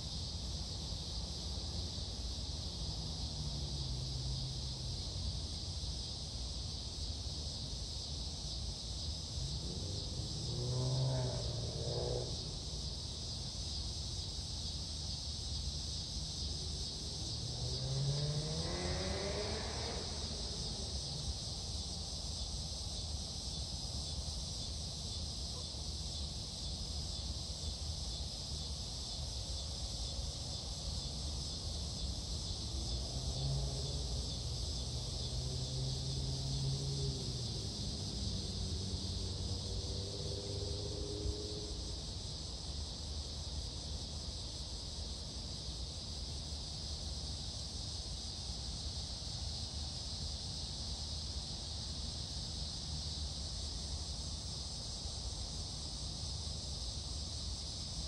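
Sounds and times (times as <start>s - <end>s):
insect chorus: 0.0s - 58.0s
distant engine passing: 9.6s - 12.6s, 17.3s - 21.2s.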